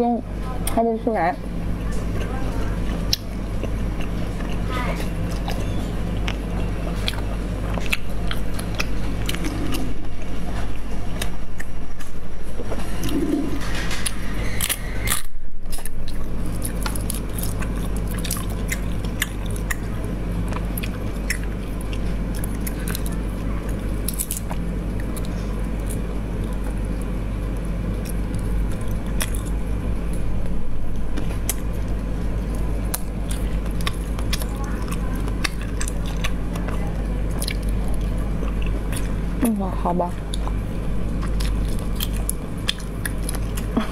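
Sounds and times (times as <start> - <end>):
steady low hum: 0.0 - 43.9
sucking and chewing: 1.6 - 12.2, 12.8 - 43.9.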